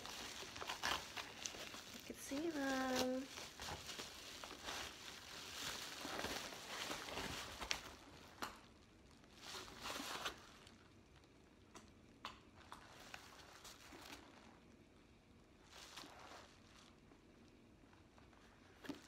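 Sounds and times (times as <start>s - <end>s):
paper envelope crinkling: 0.0s - 8.4s.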